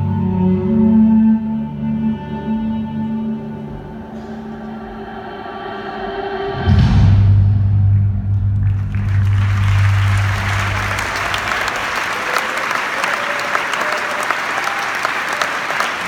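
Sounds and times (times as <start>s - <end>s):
deep sustained music note: 7.4s - 11.8s
audience applauding: 8.3s - 16.0s.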